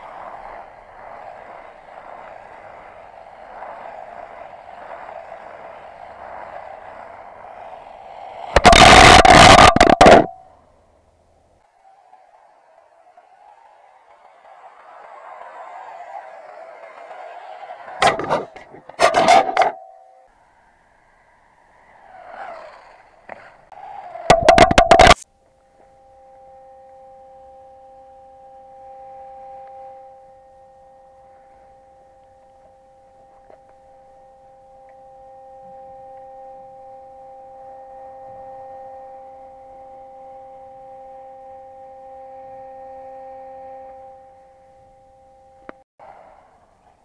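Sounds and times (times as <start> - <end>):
rc buggy clatter on concrete: 0.0 - 10.5, 11.6 - 20.4, 21.2 - 25.3
high two-note motor whine: 0.0 - 11.6, 13.1 - 46.8.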